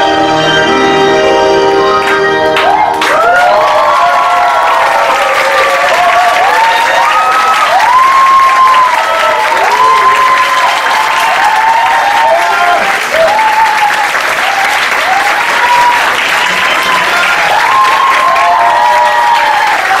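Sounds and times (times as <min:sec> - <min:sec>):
audience applauding: 0:01.9 - 0:20.0
voices calling out and cheering: 0:02.1 - 0:20.0.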